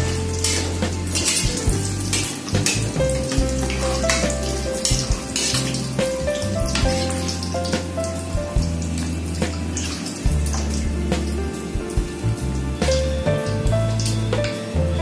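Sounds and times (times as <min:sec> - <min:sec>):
strainer clinking against wok: 0:00.0 - 0:07.8
background music with bass: 0:00.0 - 0:15.0
fish sizzling in hot oil: 0:00.0 - 0:15.0.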